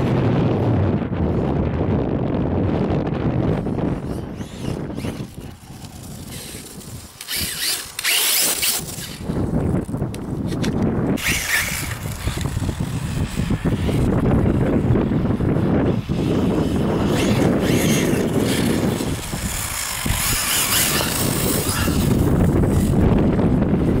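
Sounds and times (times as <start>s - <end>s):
wind buffeting microphone: 0.0s - 24.0s
electric motor whining: 3.5s - 23.9s.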